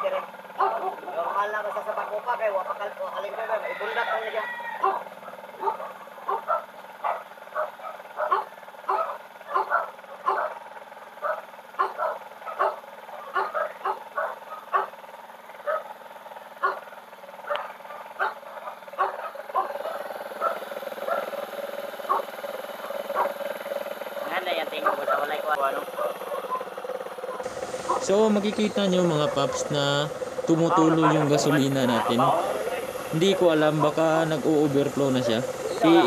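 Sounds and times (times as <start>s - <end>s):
motorcycle engine running: 0.0s - 36.0s
dog barking: 0.6s - 1.1s, 4.8s - 10.6s, 11.2s - 14.9s, 15.6s - 15.9s, 16.6s - 21.3s, 22.1s - 23.4s, 24.8s - 26.7s, 27.3s - 28.2s, 29.1s - 29.7s, 30.7s - 31.6s, 33.7s - 34.0s.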